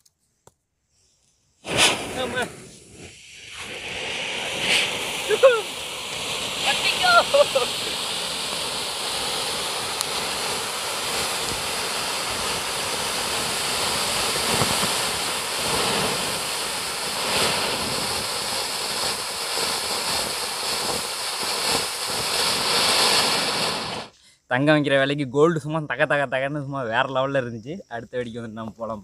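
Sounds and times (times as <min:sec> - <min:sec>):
sharp crackles: 0:01.6 - 0:24.1
firework fountain hissing rush: 0:01.6 - 0:24.2.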